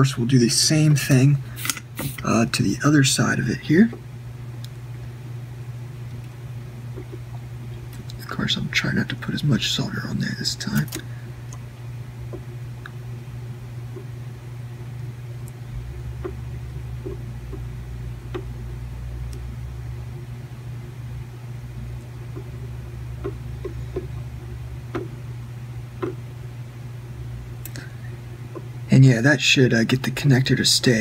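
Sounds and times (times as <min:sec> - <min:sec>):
steady low hum: 0:00.0 - 0:31.0
small soldering clicks: 0:10.7 - 0:11.6.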